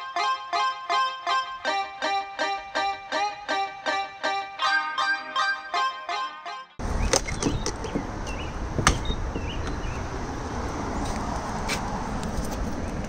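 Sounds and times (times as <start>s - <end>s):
traffic rumble: 6.8s - 13.0s
sharp clicks and knocks: 7.0s - 9.8s.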